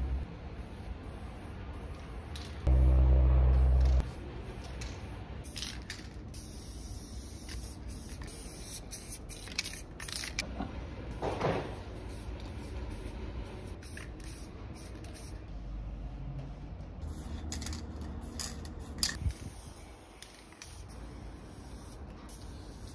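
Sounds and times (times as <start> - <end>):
spray-paint can hissing: 3.6 - 10.4, 12.0 - 15.4, 17.0 - 22.9.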